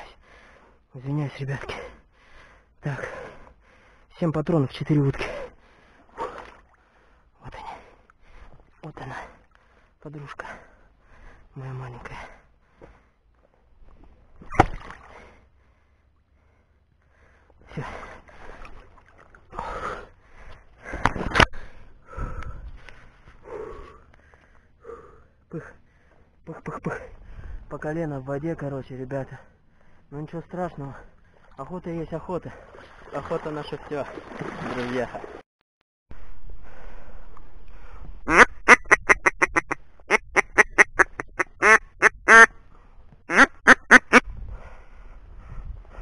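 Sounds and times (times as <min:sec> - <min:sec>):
person breathing hard: 0:00.2 - 0:00.8, 0:01.9 - 0:04.1, 0:19.5 - 0:26.4, 0:44.2 - 0:46.0
splashing through water: 0:14.4 - 0:15.2, 0:18.2 - 0:19.6, 0:32.4 - 0:35.4
duck quacking: 0:38.3 - 0:42.5, 0:43.3 - 0:44.2.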